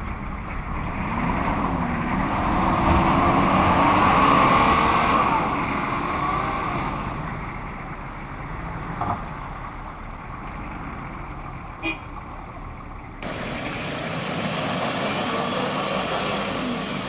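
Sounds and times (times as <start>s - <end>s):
engines revving hard: 0.0s - 9.4s, 13.2s - 17.0s.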